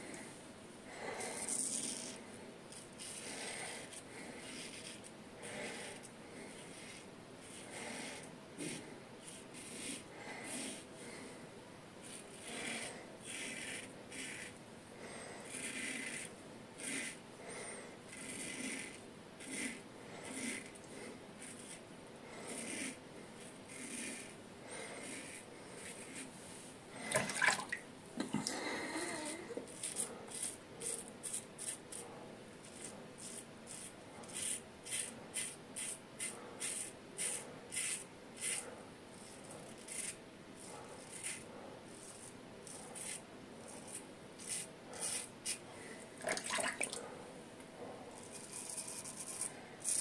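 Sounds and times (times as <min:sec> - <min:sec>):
razor scraping stubble: 0:32.6 - 0:38.6, 0:39.2 - 0:41.4, 0:48.1 - 0:50.0.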